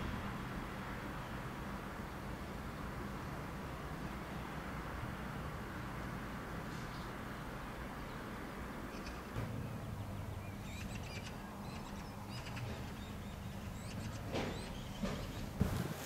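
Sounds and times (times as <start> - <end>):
small birds chirping: 6.7 - 15.9.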